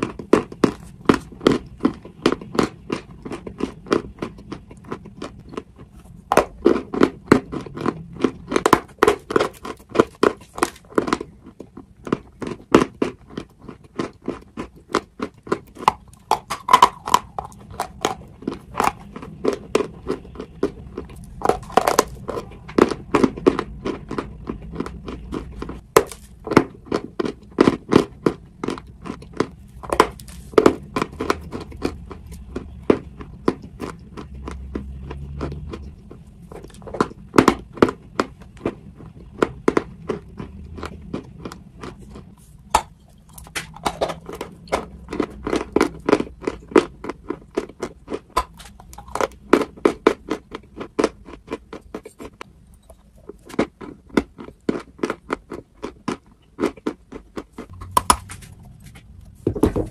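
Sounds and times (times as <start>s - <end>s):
chewing crunchy chalk: 0.0s - 59.9s.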